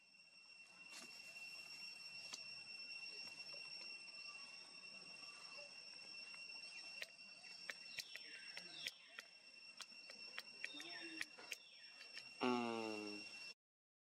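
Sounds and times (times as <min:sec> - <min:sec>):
high-pitched whine: 0:00.0 - 0:13.6
soft ticks: 0:07.7 - 0:12.3.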